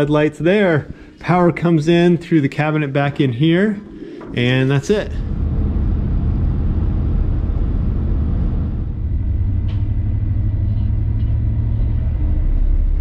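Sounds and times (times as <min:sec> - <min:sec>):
truck engine and road rumble: 0:05.1 - 0:13.0.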